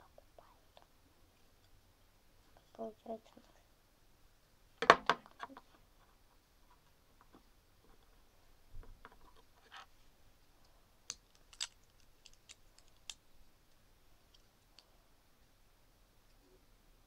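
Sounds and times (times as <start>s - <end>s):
plastic bricks clicking: 11.1s - 13.2s.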